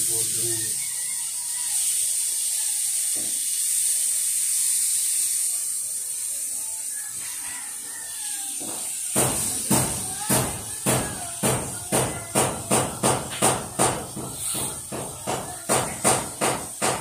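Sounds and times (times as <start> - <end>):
steady high-pitched hiss: 0.0 - 17.0
sharp knocks: 8.6 - 17.0.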